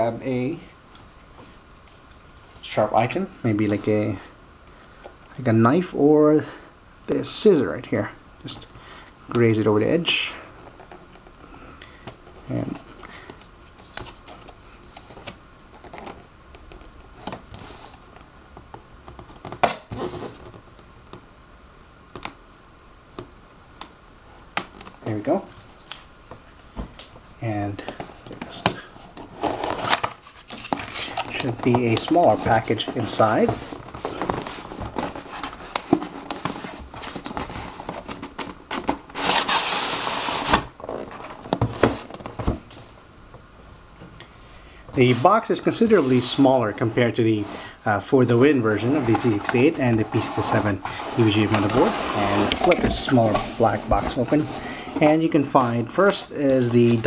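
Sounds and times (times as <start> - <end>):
cardboard box scraping: 39.1 - 42.1, 48.7 - 55.7.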